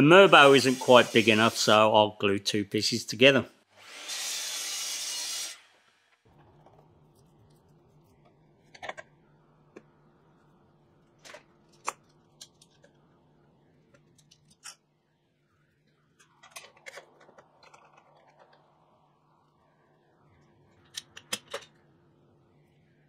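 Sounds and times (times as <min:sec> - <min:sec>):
faint steady hum: 0:06.3 - 0:23.0.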